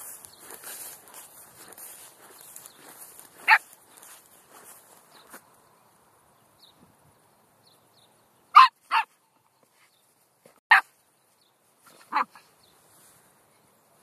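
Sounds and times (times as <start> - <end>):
dog barking: 3.4 - 3.7, 8.5 - 9.1, 12.0 - 12.5.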